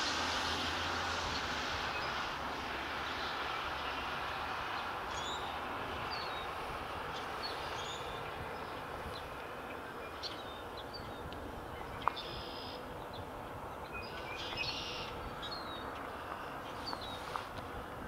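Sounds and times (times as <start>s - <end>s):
distant freight train rumble: 0.0s - 18.0s
birds chirping: 4.3s - 17.6s.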